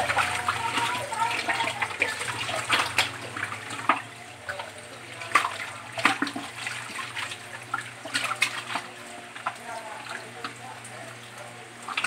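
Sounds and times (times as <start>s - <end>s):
sharp water splashes: 0.0s - 4.6s, 5.2s - 8.9s
water sloshing in a sink: 0.0s - 12.0s.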